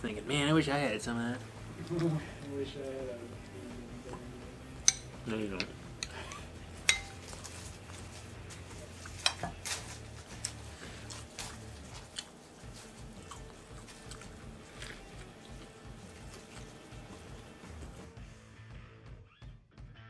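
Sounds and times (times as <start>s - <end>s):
person chewing food: 7.1s - 18.0s.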